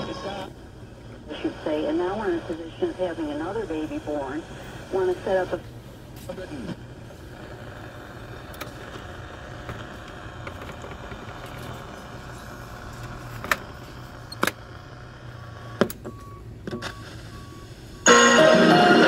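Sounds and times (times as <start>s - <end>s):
steady low hum: 0.0s - 19.0s
short faint beeps: 16.1s - 18.2s.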